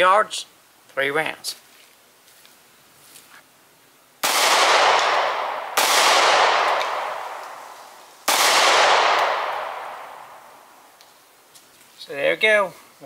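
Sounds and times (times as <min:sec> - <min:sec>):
pistol shots: 0:04.2 - 0:10.6.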